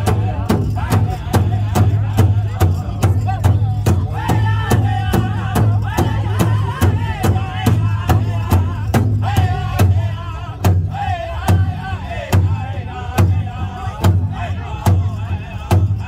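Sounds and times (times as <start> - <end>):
large hand drum beating: 0.0 - 12.6.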